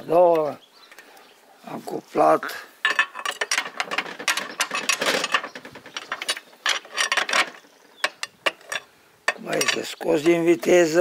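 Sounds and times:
gearbox gears clicking and rattling: 3.0 - 10.0.

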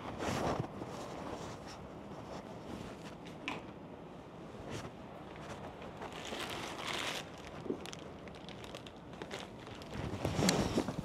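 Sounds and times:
paper bag rustling and crinkling: 5.5 - 11.0.

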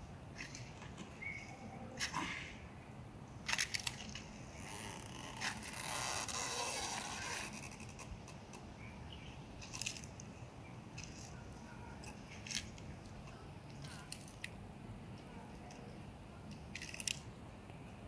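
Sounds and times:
tortoise crunching dry leaves: 9.6 - 10.2.

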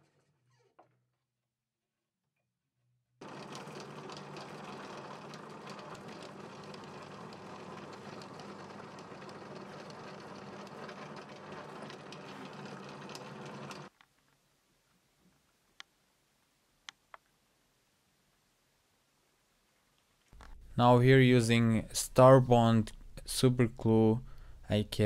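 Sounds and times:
drill bit ticking in wood: 3.2 - 13.9
small drill motor hum: 3.2 - 13.9.

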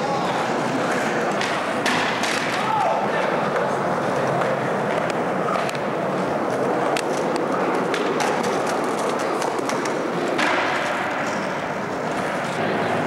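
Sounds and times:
skateboard wheels rolling on pavement: 0.0 - 13.0
sharp clicks and clacks: 6.9 - 11.4.

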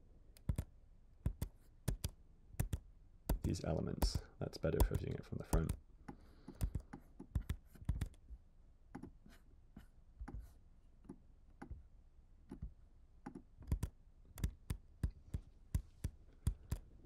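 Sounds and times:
mouse and keyboard clicks: 0.4 - 0.7, 1.3 - 4.2, 4.8 - 5.8, 6.5 - 8.2, 12.5 - 16.8.

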